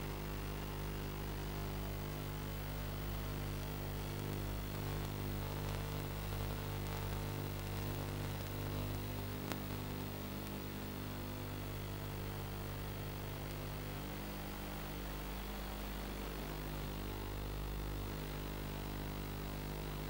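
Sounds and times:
steady hiss: 0:04.1 - 0:20.0.

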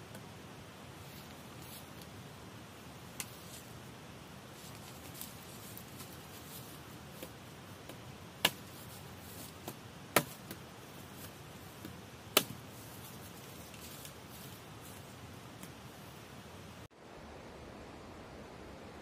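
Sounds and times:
machete chopping wooden pole: 0:07.2 - 0:08.9, 0:09.6 - 0:10.6, 0:11.8 - 0:12.6.

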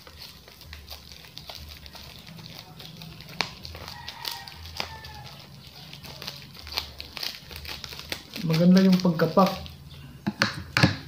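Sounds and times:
rooster crowing: 0:03.7 - 0:06.2
cardboard packaging clicks and taps: 0:10.2 - 0:11.0.

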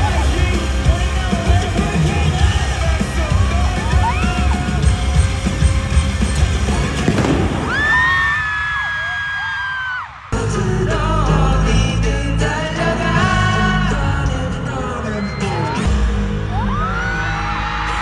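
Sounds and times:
live pop music with pulsing bass: 0:00.0 - 0:08.1, 0:10.3 - 0:18.0
voices singing: 0:10.3 - 0:15.9.

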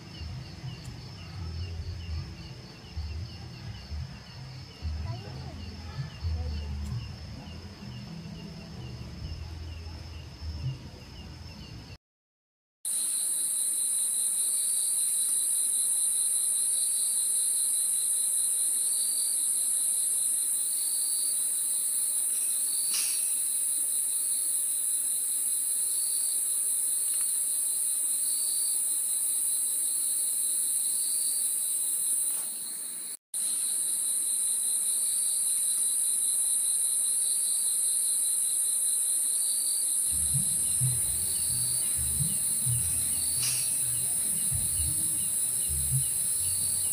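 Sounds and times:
low insect trill: 0:00.0 - 0:11.7, 0:12.9 - 0:46.9
insects high-pitched drone: 0:12.9 - 0:46.9.

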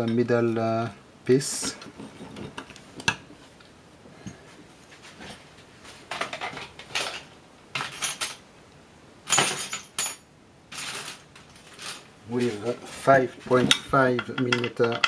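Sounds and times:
metal hand tools clinking: 0:13.7 - 0:15.0.

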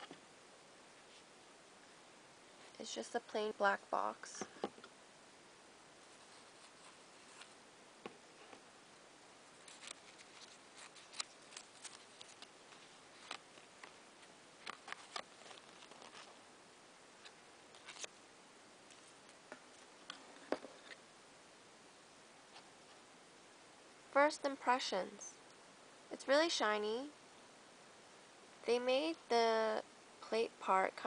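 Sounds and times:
quiet hiss: 0:00.0 - 0:31.0
paper rustling: 0:06.0 - 0:07.6, 0:09.6 - 0:16.4, 0:17.2 - 0:18.1.

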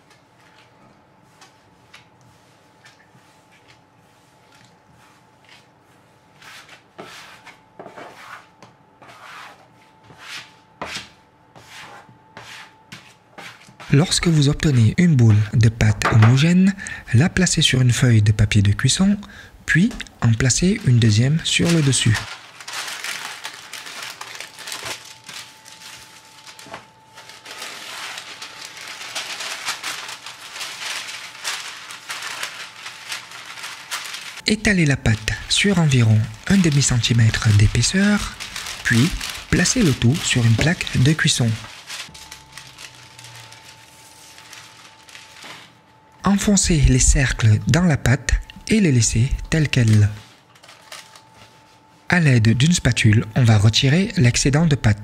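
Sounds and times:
baking paper rustling and crinkling: 0:18.5 - 0:47.6, 0:48.9 - 0:55.0
gloved hands kneading dough: 0:19.9 - 0:45.8.

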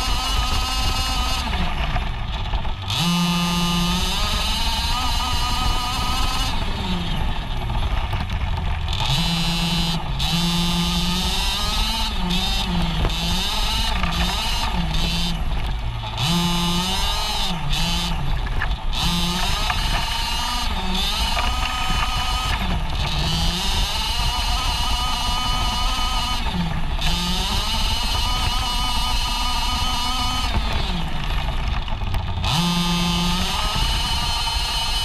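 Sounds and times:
two-stroke engine revving: 0:00.0 - 0:35.0.

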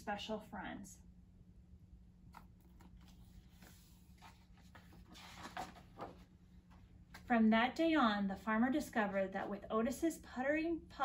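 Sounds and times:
low steady hum: 0:00.0 - 0:11.0
book page rustling: 0:02.3 - 0:06.3.

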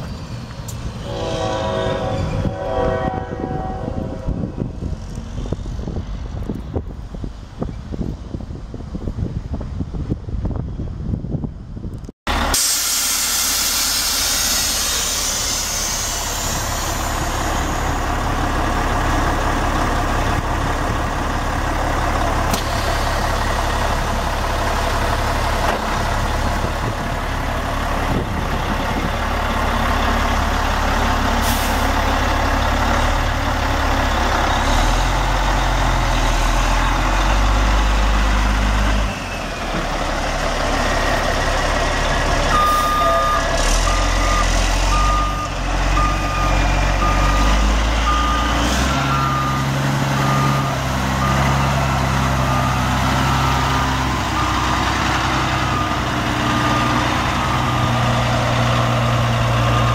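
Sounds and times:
diesel truck engine idling: 0:12.3 - 0:59.9
hiss: 0:12.5 - 0:17.0.

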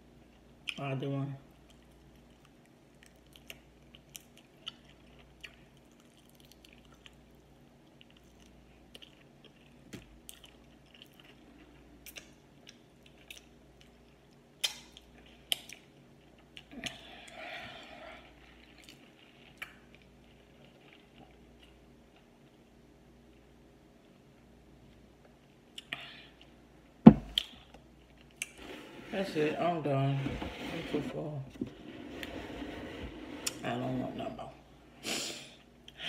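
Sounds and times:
chewing with wet lip smacks: 0:01.6 - 0:17.0.

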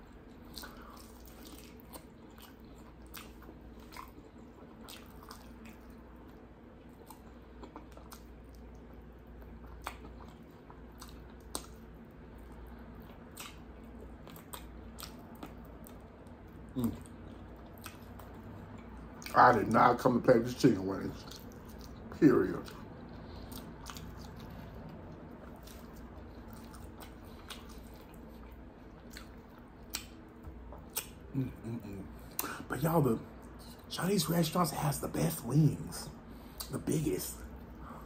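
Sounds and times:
chewing and biting: 0:00.0 - 0:19.4, 0:21.1 - 0:31.6.

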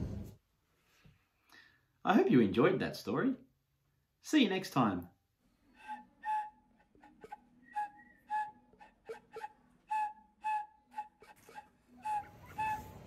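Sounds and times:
whistled tune: 0:05.8 - 0:13.0.

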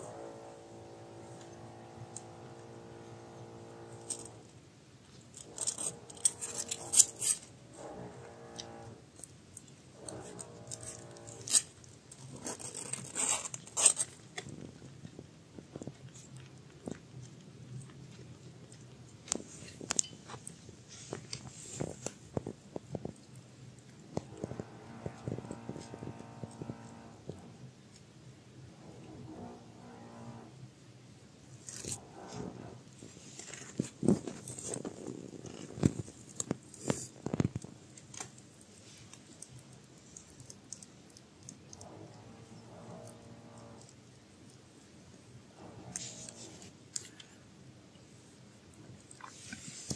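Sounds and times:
rustling of fur and bedding: 0:19.4 - 0:22.4.

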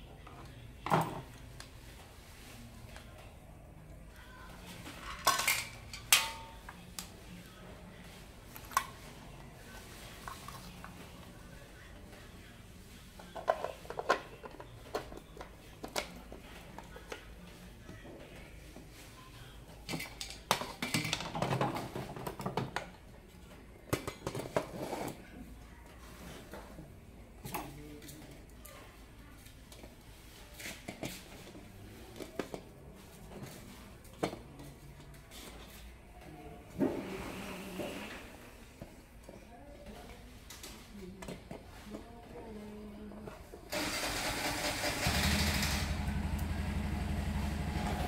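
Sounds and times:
plastic parts clicking and clattering: 0:05.0 - 0:06.4.

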